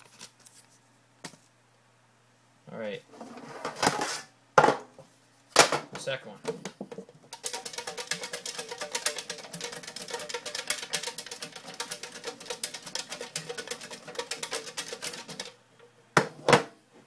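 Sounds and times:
metal tin rattling: 0:07.0 - 0:15.6.

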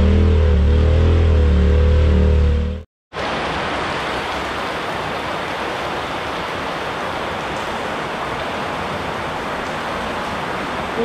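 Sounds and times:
waterfall roaring: 0:03.2 - 0:11.0.

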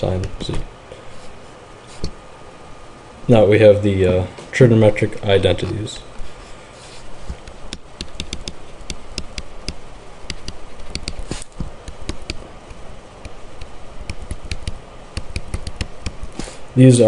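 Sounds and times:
stylus tapping on tablet screen: 0:07.3 - 0:16.3.

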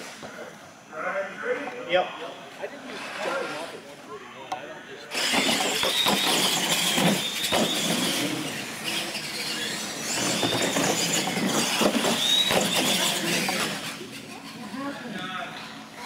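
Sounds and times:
toy truck motor whine: 0:05.1 - 0:15.0.

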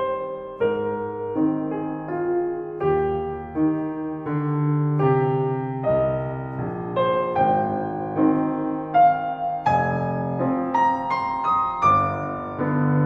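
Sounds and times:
slow solo piano melody: 0:00.0 - 0:13.0.

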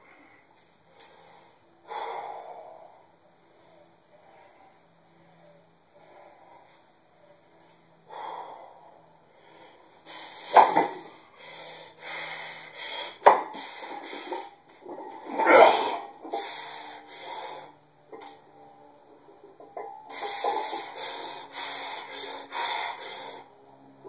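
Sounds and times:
man breathing forcefully: 0:00.0 - 0:04.8, 0:07.9 - 0:14.6, 0:15.8 - 0:17.8, 0:20.1 - 0:23.8
man grunting: 0:15.3 - 0:16.0.

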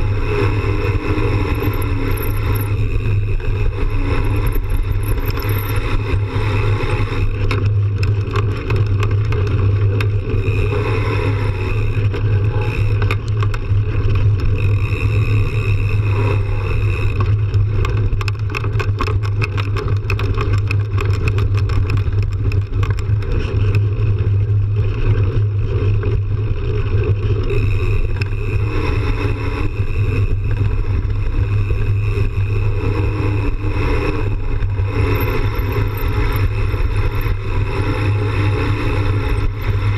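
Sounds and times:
rattling clicks: 0:01.2 - 0:06.2, 0:16.8 - 0:23.8, 0:34.6 - 0:39.9.

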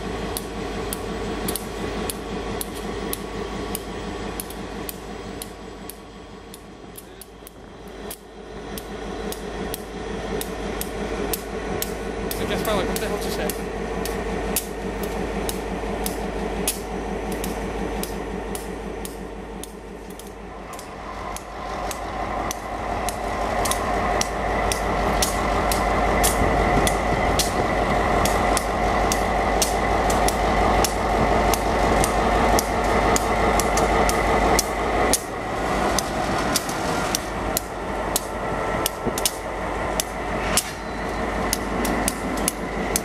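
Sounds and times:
diesel locomotive engine: 0:00.0 - 0:43.0
sharp clicks: 0:00.3 - 0:35.3, 0:36.0 - 0:43.0.

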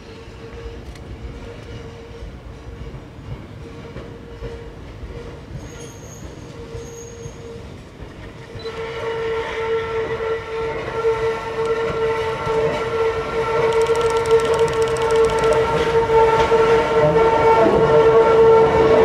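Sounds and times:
train wheels squealing: 0:00.0 - 0:17.8
train low rumble: 0:00.0 - 0:19.0.

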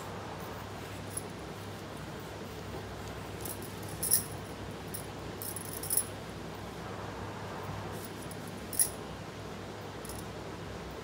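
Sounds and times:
glass bangles clinking: 0:03.4 - 0:06.2, 0:08.2 - 0:09.0.

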